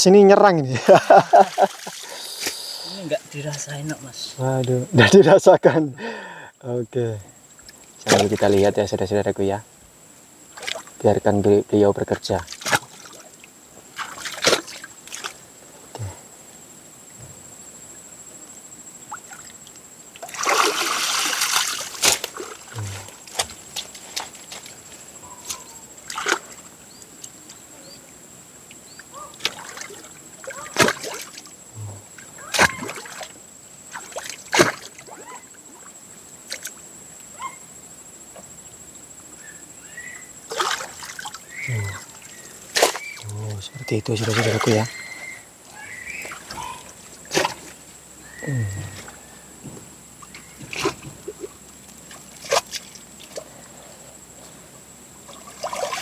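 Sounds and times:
water splashing and sloshing: 0:00.8 - 0:04.1, 0:07.5 - 0:08.8, 0:10.5 - 0:11.1, 0:12.2 - 0:16.1, 0:19.0 - 0:36.9, 0:40.3 - 0:48.0, 0:48.8 - 0:53.7, 0:55.2 - 0:56.0
strikes into mud: 0:08.0 - 0:08.6, 0:12.5 - 0:13.0, 0:14.0 - 0:15.4, 0:20.3 - 0:24.7, 0:30.7 - 0:31.4, 0:32.5 - 0:33.3, 0:33.9 - 0:35.0, 0:42.7 - 0:43.2, 0:47.3 - 0:47.8, 0:50.6 - 0:51.4, 0:52.4 - 0:53.4.

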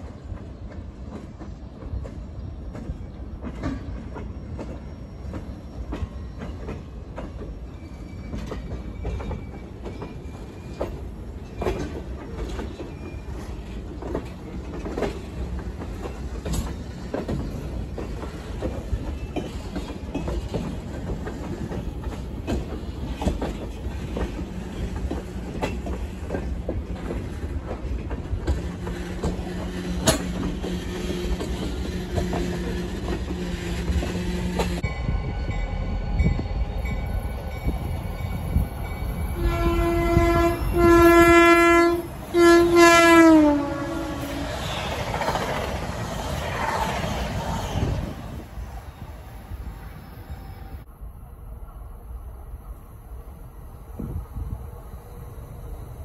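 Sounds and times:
train wheels clicking over rail joints: 0:00.0 - 0:34.8
train rumble: 0:00.0 - 0:56.0
faint wheel squeals: 0:03.7 - 0:11.9.

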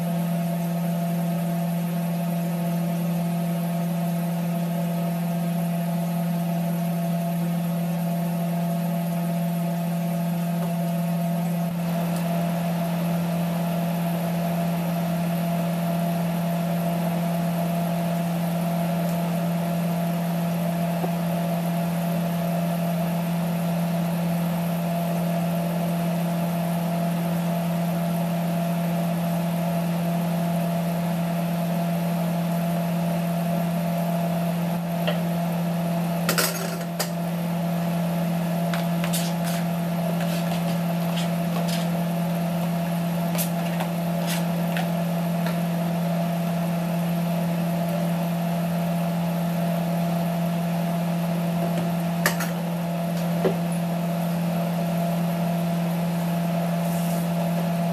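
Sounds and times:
low motor hum: 0:32.5 - 0:57.9
vegetables clattering into pot: 0:36.3 - 0:37.2.

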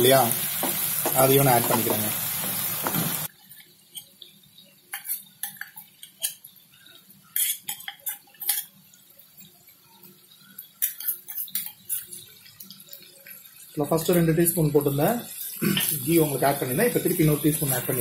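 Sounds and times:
cookware clicks and clinks: 0:04.9 - 0:06.4.

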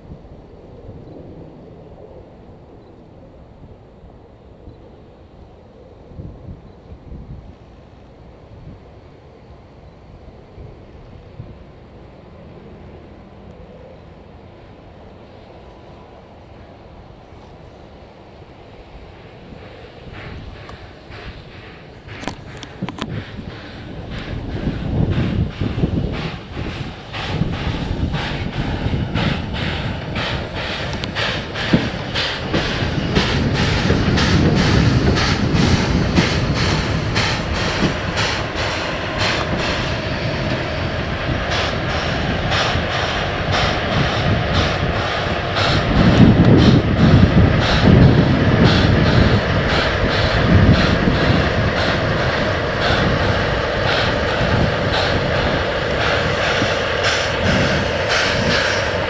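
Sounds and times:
train passing slowly: 0:00.0 - 0:59.0.

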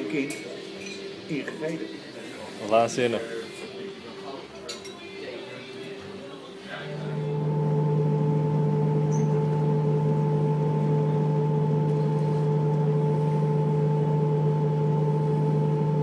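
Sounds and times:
boat motor humming: 0:06.8 - 0:16.0.

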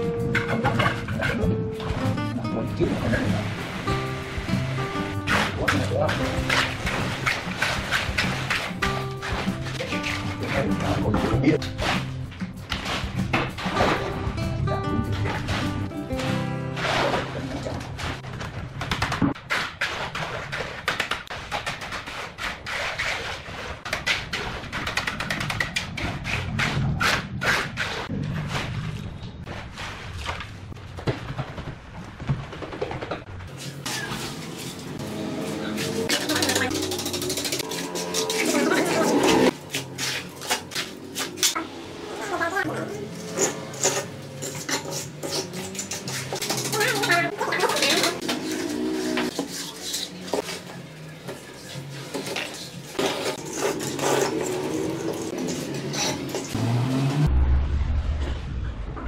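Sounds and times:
trowel scraping wet cement: 0:05.2 - 0:13.9, 0:15.1 - 0:18.2, 0:19.4 - 0:28.8, 0:33.6 - 0:41.6, 0:42.9 - 0:50.8, 0:51.6 - 0:56.7
hands slapping wet concrete: 0:05.3 - 0:12.1, 0:18.4 - 0:22.6.

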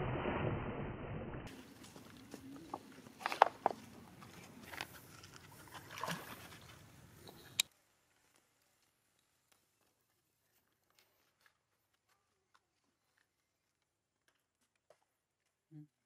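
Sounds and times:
water splashing and lapping: 0:01.4 - 0:07.7
sharp splashes: 0:05.6 - 0:06.9.

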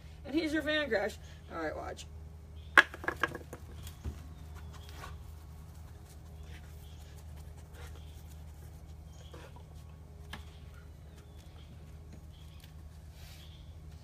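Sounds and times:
low steady hum: 0:00.0 - 0:14.0
dog paws tapping and scuffing: 0:03.6 - 0:13.1.

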